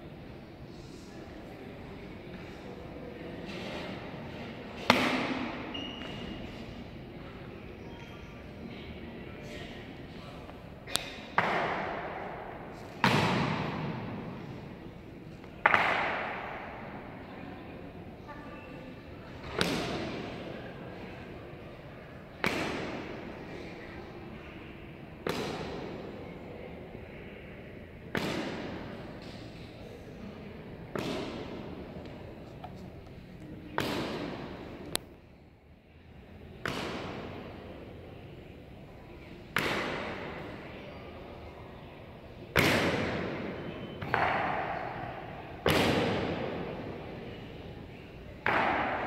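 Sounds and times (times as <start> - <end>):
sharp loud strikes with echo: 15.6 - 16.8.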